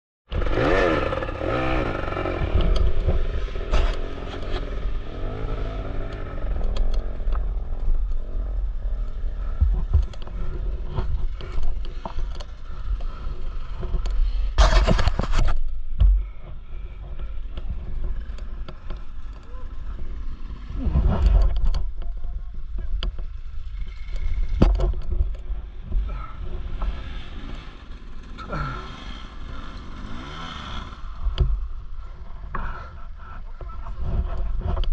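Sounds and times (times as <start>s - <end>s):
dirt bike engines revving: 0.3s - 15.4s, 16.2s - 34.9s
scraping and clattering over rock: 9.4s - 22.0s.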